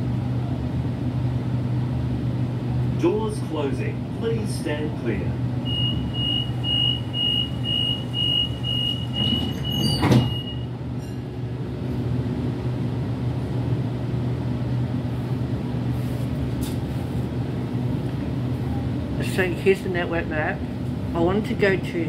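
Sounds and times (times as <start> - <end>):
low train hum: 0.0 - 22.0
sliding doors thudding shut: 9.1 - 10.5.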